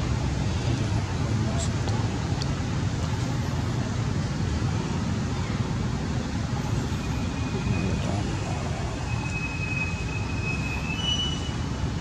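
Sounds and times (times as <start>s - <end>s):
thin high whistling tones: 9.0s - 11.6s.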